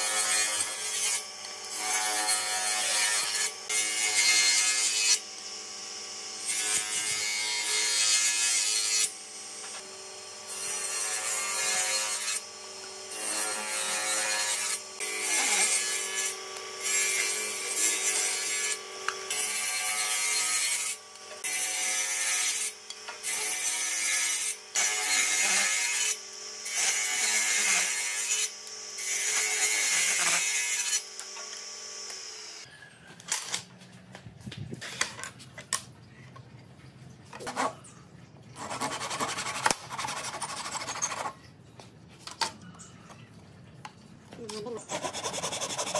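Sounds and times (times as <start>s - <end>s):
table saw cutting wood: 0.0s - 32.7s, 38.6s - 41.4s, 44.5s - 45.9s
table saw running hum: 8.8s - 24.1s, 24.8s - 32.7s.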